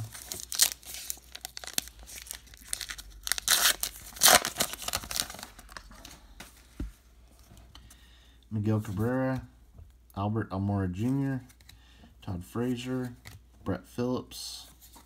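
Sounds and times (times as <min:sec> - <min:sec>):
foil wrapper tearing and crinkling: 0:00.0 - 0:05.6.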